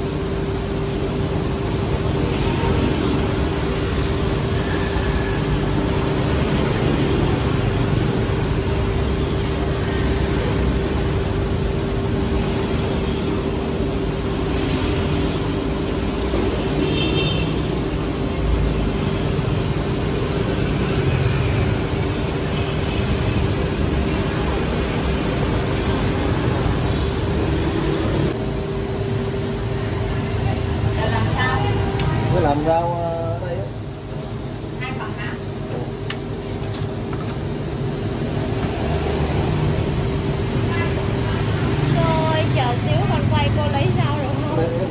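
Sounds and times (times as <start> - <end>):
constant hum: 0.0 - 44.9
street traffic noise: 0.0 - 44.9.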